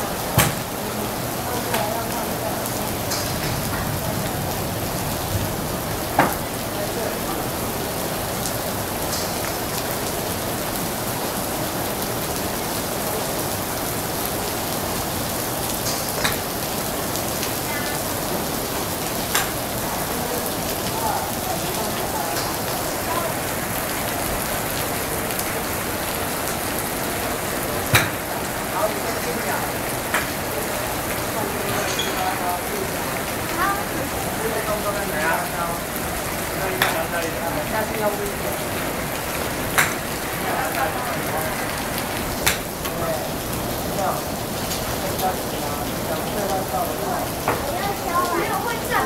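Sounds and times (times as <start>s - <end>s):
golf clubs striking balls: 39.8s - 40.0s, 42.4s - 42.6s.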